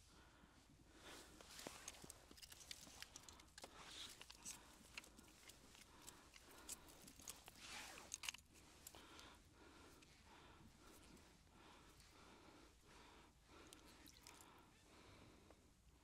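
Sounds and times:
small clicks and rustles: 0:01.1 - 0:12.2, 0:13.6 - 0:14.7.

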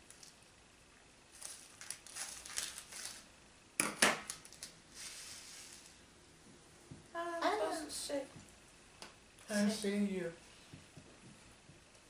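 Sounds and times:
plastic sachets crinkling: 0:01.3 - 0:03.3, 0:04.3 - 0:06.0.

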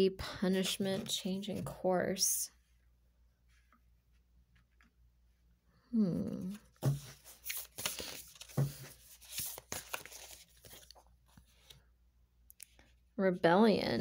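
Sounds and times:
person humming: 0:05.8 - 0:06.7
cards being shuffled: 0:06.4 - 0:11.8.

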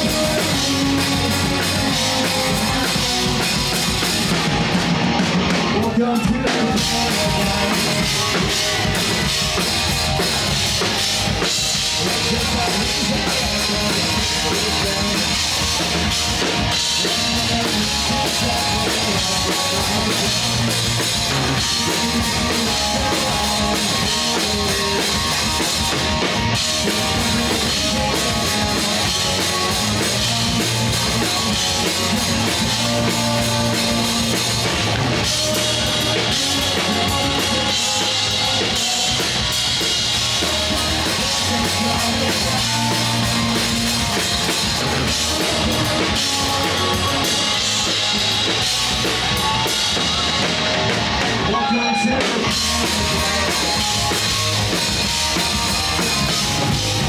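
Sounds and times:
drum kit: 0:00.0 - 0:57.0
electric bass: 0:00.0 - 0:57.0
electric guitar: 0:00.0 - 0:57.0.

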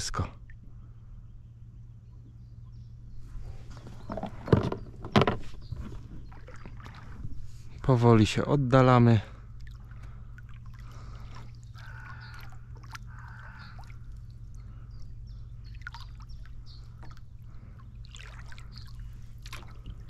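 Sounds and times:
oars dipping and pulling in water: 0:03.2 - 0:20.0
water trickling and dripping: 0:05.8 - 0:07.4, 0:09.3 - 0:20.0.

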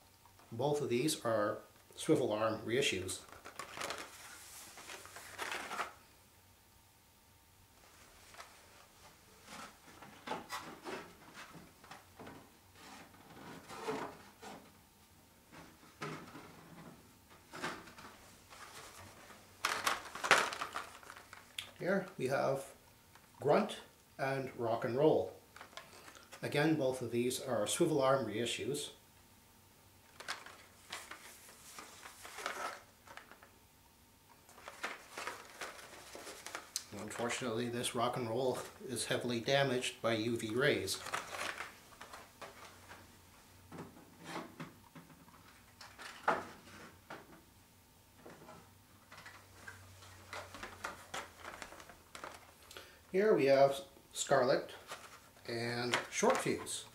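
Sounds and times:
cardboard and plastic rustling: 0:02.9 - 0:06.1, 0:07.8 - 0:14.8, 0:15.5 - 0:22.2, 0:25.5 - 0:26.5, 0:30.0 - 0:33.6, 0:34.3 - 0:38.9, 0:40.3 - 0:47.3, 0:48.2 - 0:52.7, 0:54.2 - 0:56.9.

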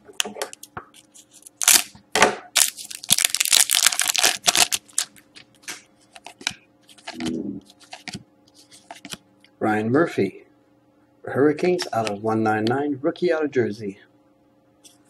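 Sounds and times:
foil wrapper crinkling: 0:01.4 - 0:01.9, 0:02.6 - 0:05.2.

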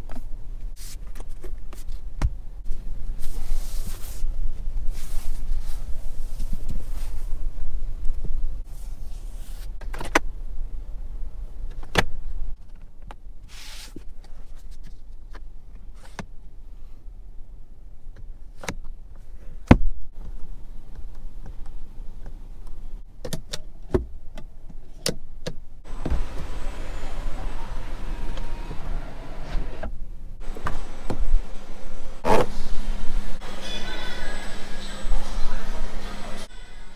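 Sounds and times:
low cabin hum: 0:23.8 - 0:36.9.

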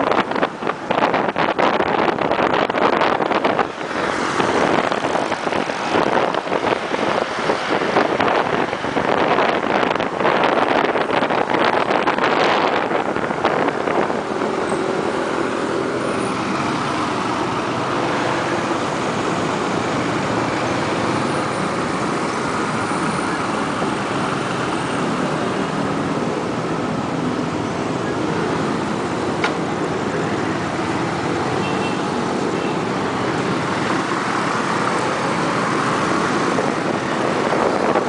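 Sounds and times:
city traffic noise: 0:00.0 - 0:38.0
wind buffeting microphone: 0:00.0 - 0:38.0.

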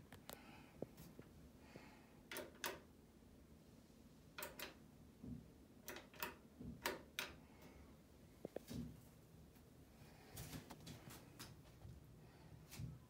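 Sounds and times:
push buttons clicking: 0:04.4 - 0:04.8.

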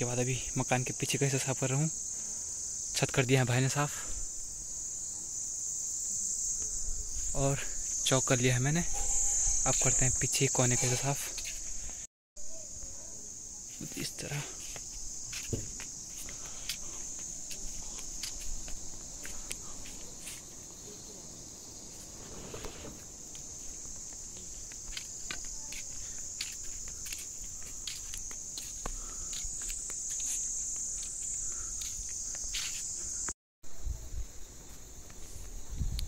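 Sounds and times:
high-pitched insect chorus: 0:00.0 - 0:36.0.

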